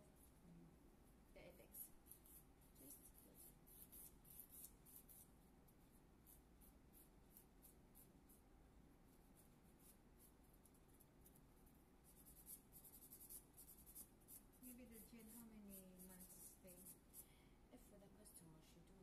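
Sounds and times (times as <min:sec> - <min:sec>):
nail file rasping: 0:02.0 - 0:05.3.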